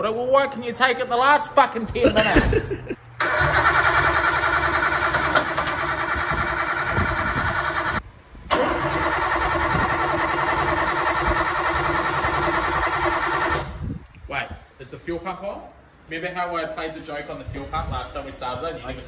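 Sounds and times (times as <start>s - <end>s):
car engine cranking without starting: 2.6s - 13.8s.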